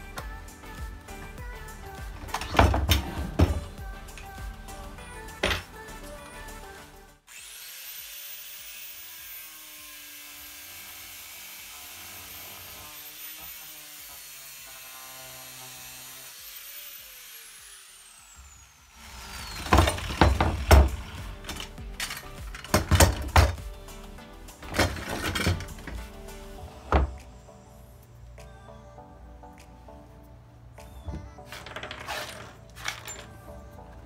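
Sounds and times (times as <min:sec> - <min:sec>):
angle grinder grinding metal: 0:01.9 - 0:27.0, 0:31.5 - 0:33.6.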